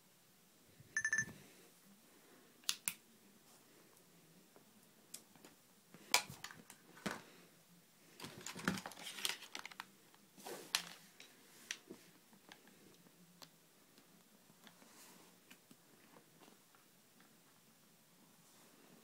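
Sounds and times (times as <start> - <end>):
light plastic clicks and rustles: 8.2 - 17.4.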